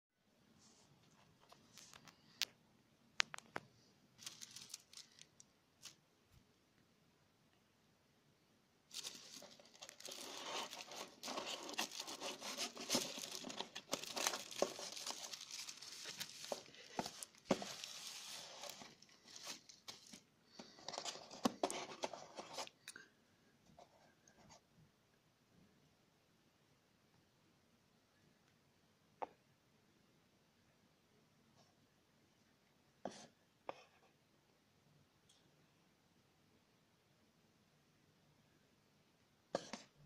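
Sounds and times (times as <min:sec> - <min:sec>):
bubble wrap crinkling: 0:04.2 - 0:06.0, 0:08.9 - 0:20.3.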